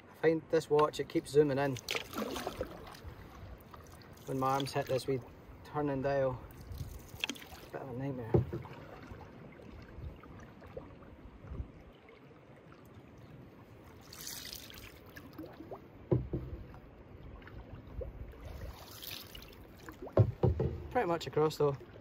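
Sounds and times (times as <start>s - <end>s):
water lapping: 1.2s - 22.0s
paddle splashing through water: 1.6s - 5.5s, 6.4s - 21.1s
dull knock: 8.3s - 8.7s, 16.1s - 16.6s, 20.2s - 20.9s.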